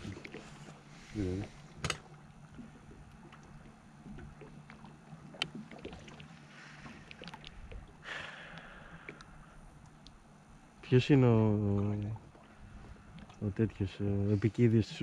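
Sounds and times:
low steady boat hum: 0.0 - 15.0
soft wash of water: 0.0 - 15.0.

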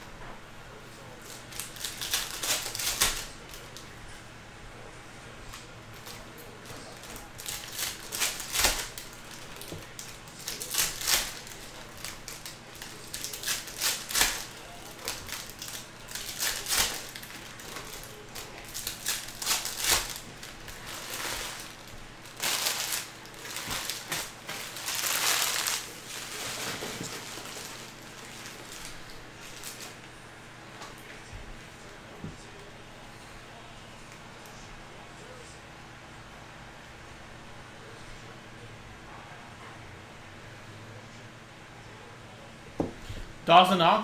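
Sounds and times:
foil wrappers tearing and crinkling: 1.2 - 3.9, 6.0 - 30.0.

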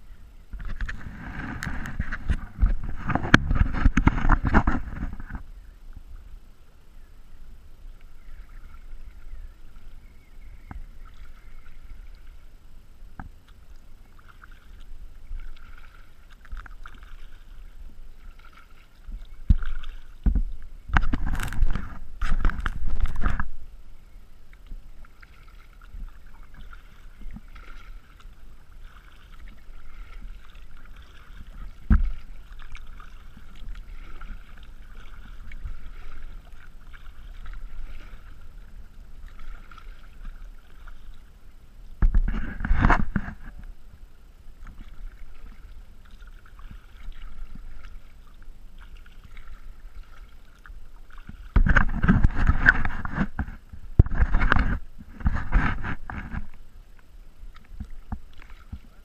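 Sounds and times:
wind noise: 0.0 - 5.8, 18.3 - 23.7, 42.0 - 43.7, 51.4 - 56.6
water rushing: 0.0 - 59.0
water trickling along a hull: 0.0 - 59.0.

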